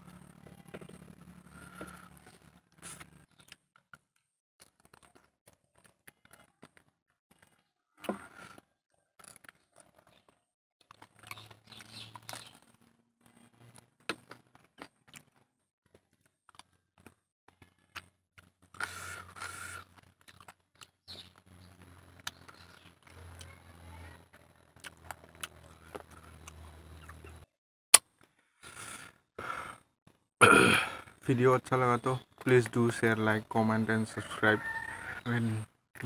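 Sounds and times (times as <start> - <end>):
man chewing and crunching bone: 4.6 - 23.5, 24.6 - 31.2.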